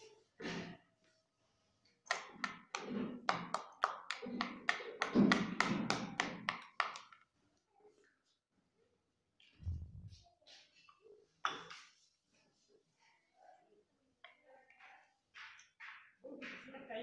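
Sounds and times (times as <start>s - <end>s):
metal spoon tapping plastic bowl: 2.1s - 7.2s.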